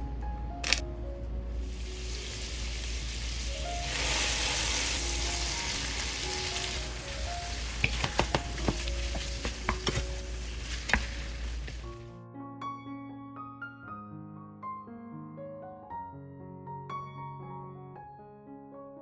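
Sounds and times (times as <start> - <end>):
soft background music: 0.0 - 14.8
shrimp sizzling in oil in a pan: 1.6 - 12.0.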